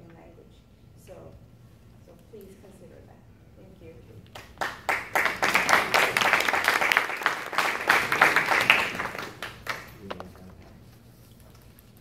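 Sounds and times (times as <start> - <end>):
audience applauding: 4.6 - 10.3.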